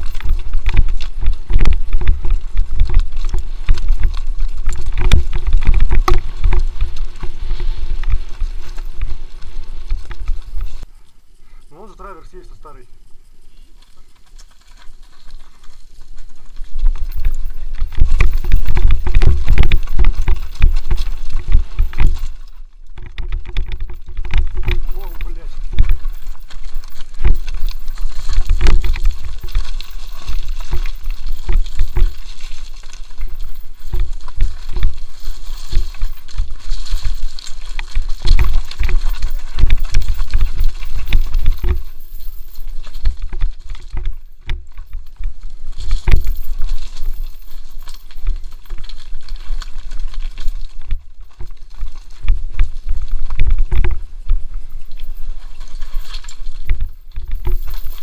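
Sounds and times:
wind on microphone: 0.0s - 10.9s, 16.6s - 24.7s
bike rattling over rocks: 0.0s - 58.0s.

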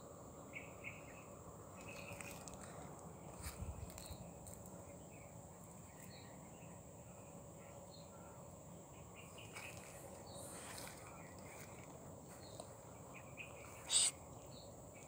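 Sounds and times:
short bird chirps: 13.6s - 14.2s.

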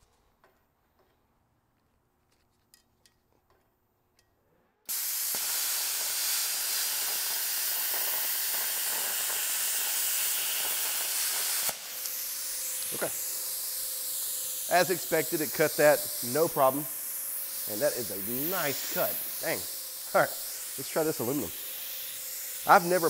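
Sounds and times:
plasma cutter hissing: 4.9s - 23.0s.

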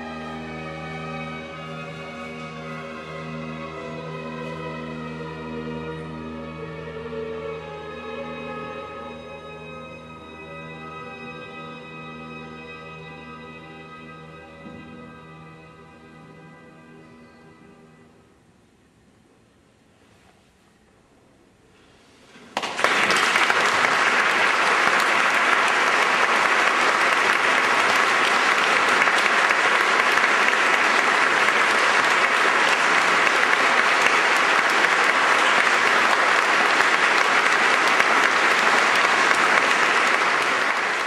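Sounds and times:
audience applause: 22.6s - 41.0s.

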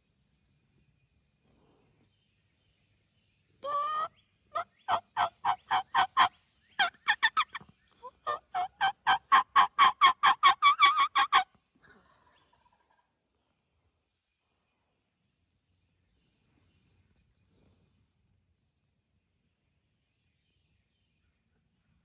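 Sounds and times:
turkey yelping: 3.6s - 11.4s.

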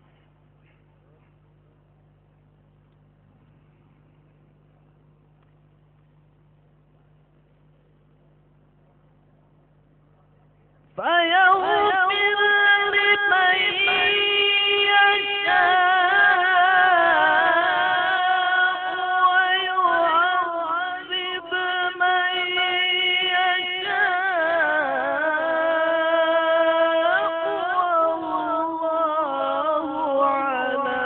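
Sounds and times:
man chanting recitation: 11.0s - 31.0s.

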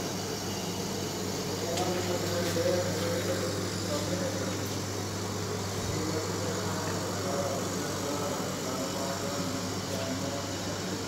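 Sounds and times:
machinery humming and hissing: 0.0s - 11.0s.

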